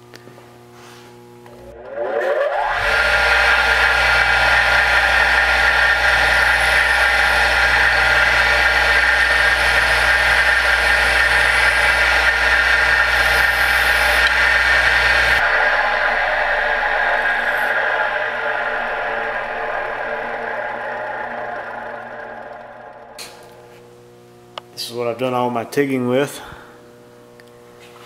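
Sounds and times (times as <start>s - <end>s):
low hum: 0.0s - 25.7s
bench grinder motor whining: 1.4s - 24.4s
electrode grinding on wheel: 1.5s - 23.7s.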